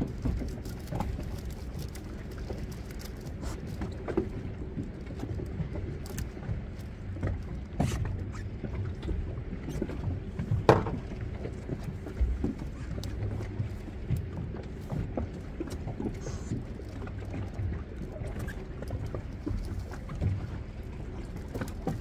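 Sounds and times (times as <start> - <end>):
boat engine humming: 0.0 - 22.0
knocks and clatter: 10.6 - 11.1.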